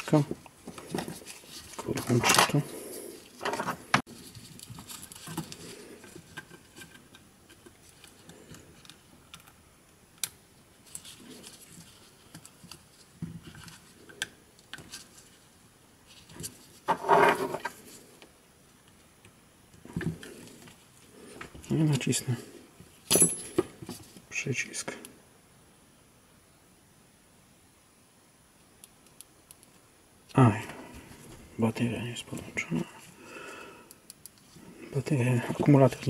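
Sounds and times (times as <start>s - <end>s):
hands handling circuit boards: 0.0s - 9.6s.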